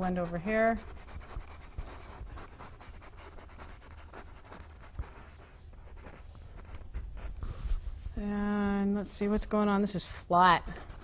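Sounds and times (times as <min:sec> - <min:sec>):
paintbrush scratching on canvas: 0:00.0 - 0:08.0, 0:10.4 - 0:11.0.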